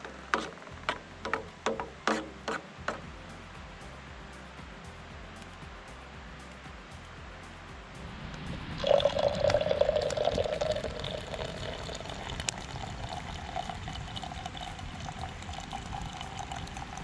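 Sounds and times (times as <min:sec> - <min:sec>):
coffee pouring into metal cup: 0:08.8 - 0:17.0.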